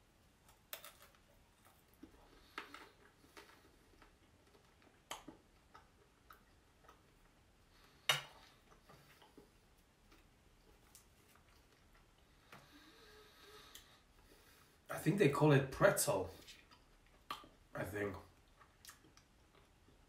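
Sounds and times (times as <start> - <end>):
chewing food: 0.5 - 12.5, 16.4 - 17.7, 18.3 - 20.0.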